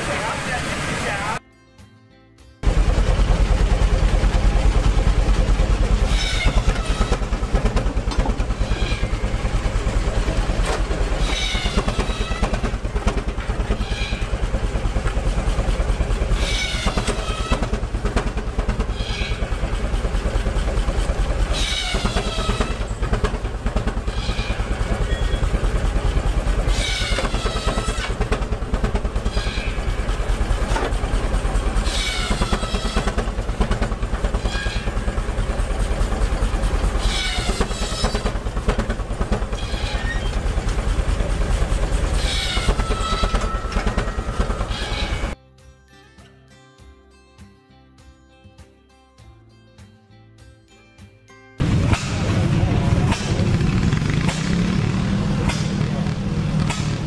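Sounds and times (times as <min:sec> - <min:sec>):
steam engine exhaust beating: 0:02.6 - 0:45.4, 0:51.6 - 0:57.0
saw ringing through wood: 0:34.3 - 0:35.2, 0:42.0 - 0:45.4.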